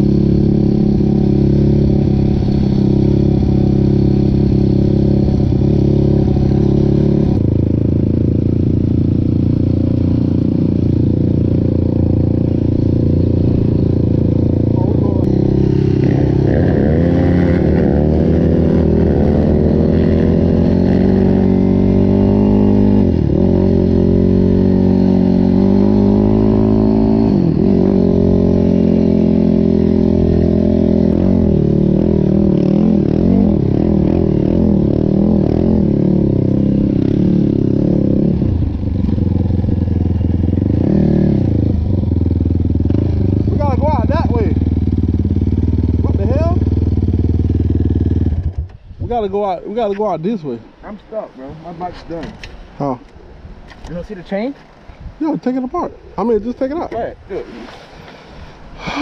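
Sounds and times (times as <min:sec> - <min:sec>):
quad engine revving: 0:00.0 - 0:48.7, 0:58.8 - 0:59.0.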